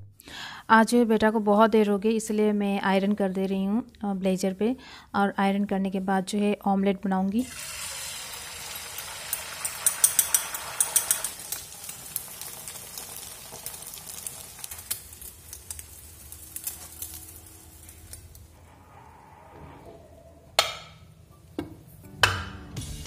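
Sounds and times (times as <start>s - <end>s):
egg sizzling in hot oil: 7.4s - 18.6s.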